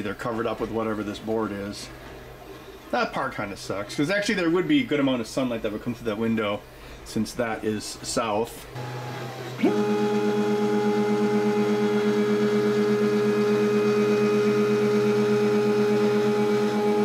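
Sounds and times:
stepper motors humming whine: 8.8 - 17.0.

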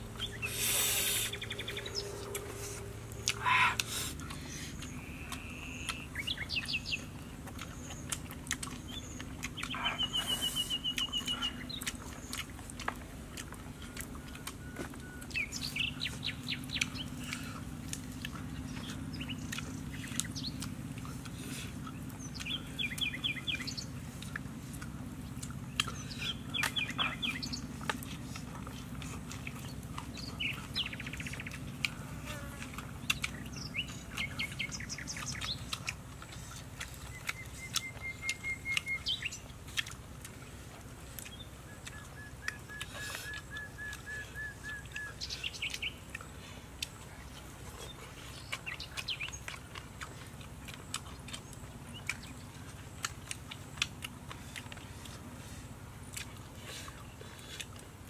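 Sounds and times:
bird chirps and trills: 0.0 - 12.6, 13.7 - 39.9, 41.2 - 46.3, 47.3 - 49.8
low steady hum: 0.0 - 58.0.

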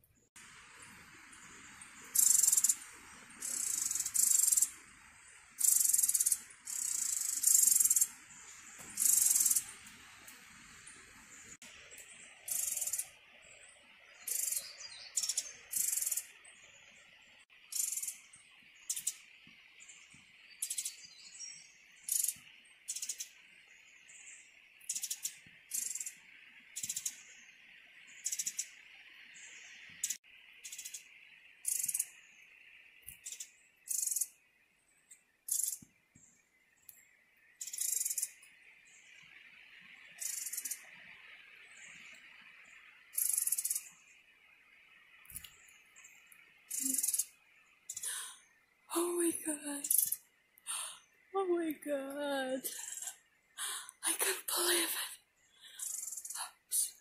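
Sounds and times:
insect drone: 0.4 - 51.4, 52.6 - 57.0
high-pitched chirps: 2.2 - 2.8, 9.0 - 9.7, 46.7 - 47.3.

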